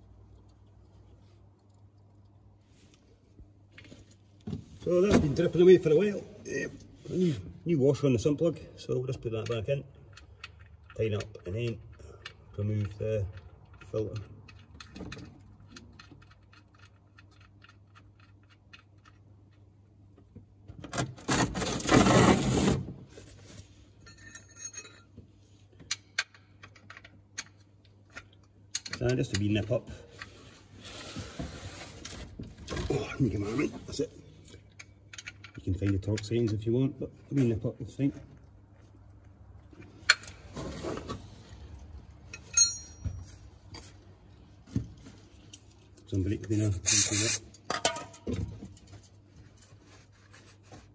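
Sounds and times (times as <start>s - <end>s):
metal tools clattering: 24.0s - 25.2s, 42.3s - 43.5s
ringing metallic clink: 24.1s - 25.1s, 42.4s - 43.2s.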